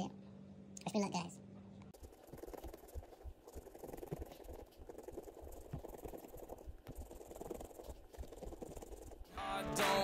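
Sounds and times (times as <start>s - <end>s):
coin scratching paper ticket: 2.0s - 9.9s.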